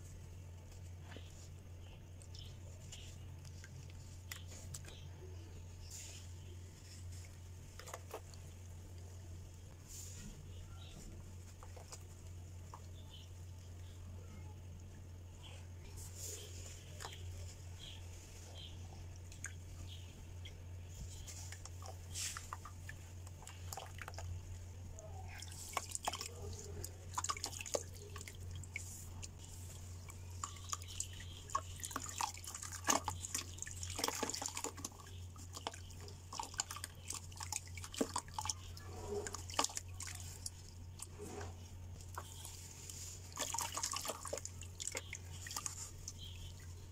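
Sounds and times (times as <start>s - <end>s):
water dripping into basin: 19.1s - 20.6s, 21.4s - 41.1s, 42.0s - 46.9s.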